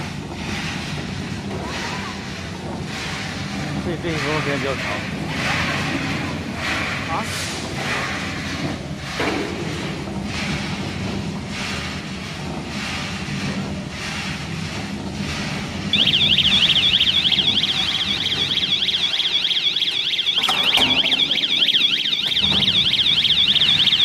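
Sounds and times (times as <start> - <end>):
roasting machine humming: 0.0 - 24.0
fast-warbling electronic alarm: 15.9 - 24.0.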